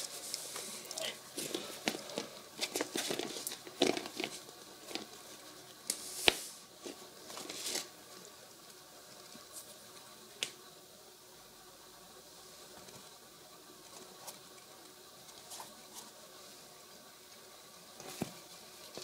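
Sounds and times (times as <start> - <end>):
shoes rustling on wooden floor: 0.1 - 5.1.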